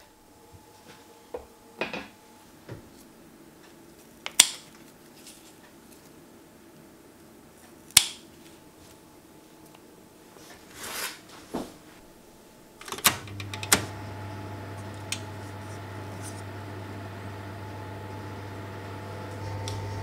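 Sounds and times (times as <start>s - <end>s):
oven fan humming: 12.2s - 20.0s.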